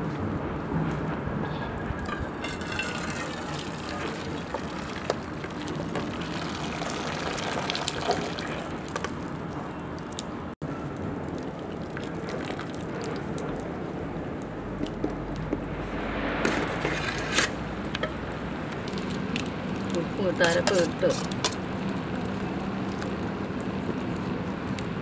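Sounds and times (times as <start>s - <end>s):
water pouring into metal bowl: 2.1s - 9.3s, 11.4s - 13.7s.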